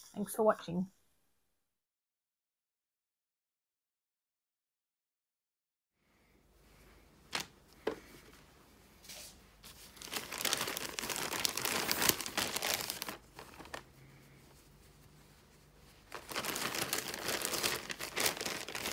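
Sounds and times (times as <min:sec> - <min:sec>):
plastic satchel crinkling: 0:09.8 - 0:13.9, 0:16.0 - 0:18.9.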